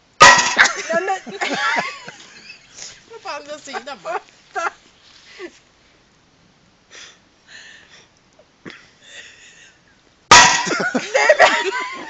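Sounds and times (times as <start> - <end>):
quiet breathing: 5.1 - 6.1, 6.9 - 10.0.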